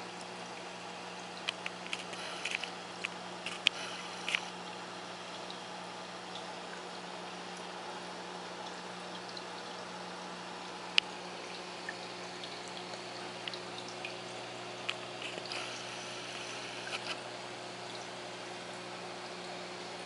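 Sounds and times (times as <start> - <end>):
low pump hum: 0.0 - 20.0
water trickling: 0.0 - 20.0.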